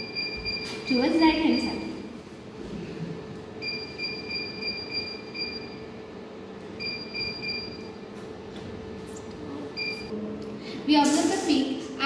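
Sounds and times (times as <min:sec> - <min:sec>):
high-pitched keypad beeps: 0:00.0 - 0:02.0, 0:03.6 - 0:05.9, 0:06.8 - 0:07.9, 0:09.8 - 0:10.1
steady low hum: 0:00.0 - 0:12.0.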